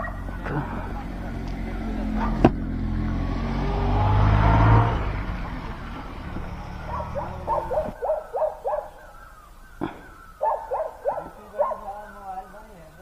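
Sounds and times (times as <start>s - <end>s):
motorcycle engine: 0.0s - 12.6s
dog yipping: 6.9s - 9.2s, 10.4s - 11.9s.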